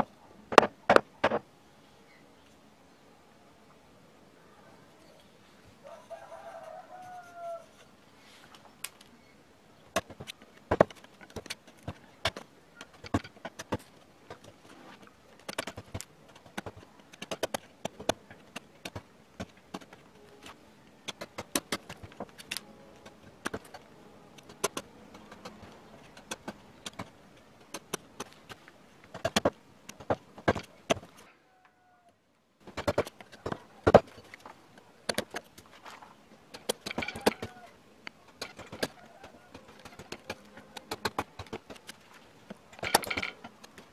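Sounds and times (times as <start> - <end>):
gouge chipping wood: 15.4 - 20.0, 24.4 - 31.3, 35.1 - 35.5, 38.4 - 42.0.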